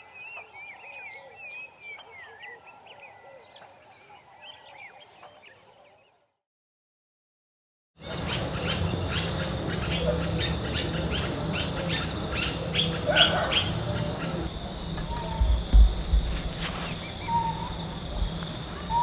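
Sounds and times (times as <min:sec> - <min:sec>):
bird chirps: 0:08.0 - 0:19.0
insect trill: 0:08.0 - 0:19.0
low rumble: 0:14.3 - 0:19.0.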